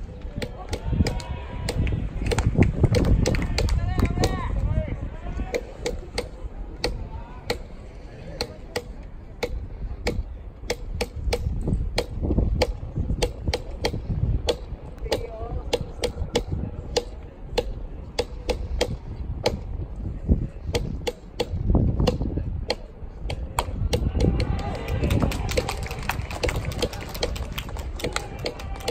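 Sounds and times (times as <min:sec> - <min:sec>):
rumble of crowd voices: 0:00.0 - 0:28.9
crowd clapping rhythmically: 0:24.4 - 0:28.9.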